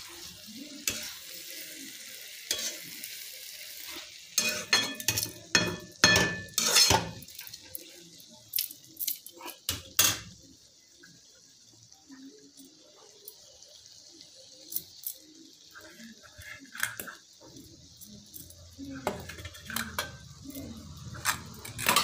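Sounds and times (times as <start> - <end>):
steady high hiss: 0.0 - 22.0
spoon clinking against a pan: 4.4 - 7.3, 8.6 - 10.4.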